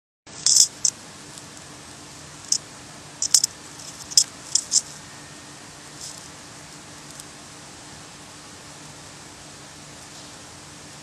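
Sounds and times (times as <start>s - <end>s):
faint steady hum: 0.3s - 11.0s
phone handling scratches and rustles: 0.4s - 1.0s, 3.2s - 5.0s.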